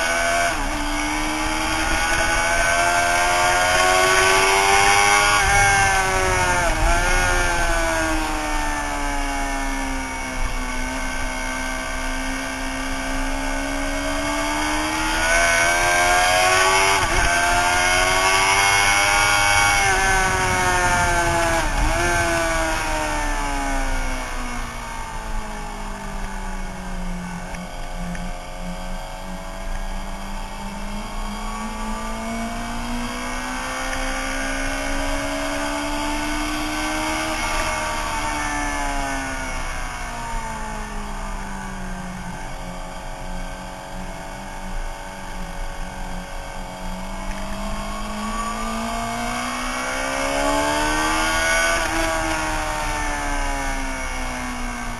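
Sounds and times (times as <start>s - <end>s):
wind noise: 0.0s - 11.4s, 13.6s - 28.2s
motorcycle engine revving: 0.0s - 54.9s.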